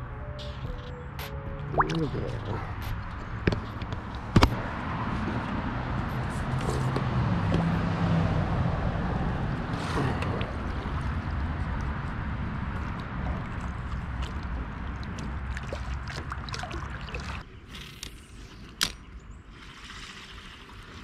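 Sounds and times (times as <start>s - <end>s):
water sloshing: 1.6s - 4.3s, 9.7s - 17.5s.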